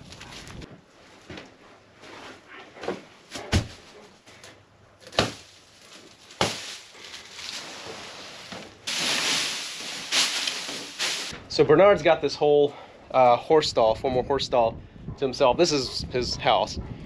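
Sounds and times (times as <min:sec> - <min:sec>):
dry straw rustling: 0:05.0 - 0:11.4.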